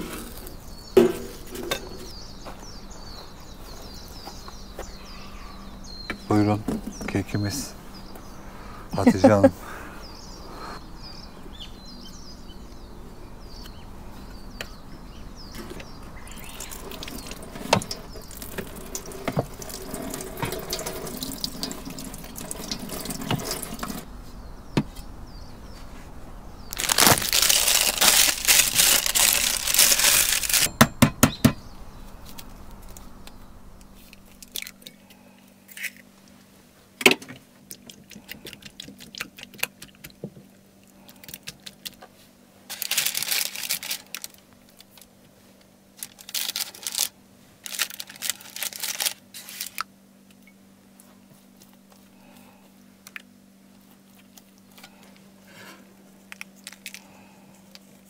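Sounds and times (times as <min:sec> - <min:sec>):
water running from a tap: 0:16.4 - 0:24.0
sharp knocks and clinks: 0:30.7 - 0:31.6.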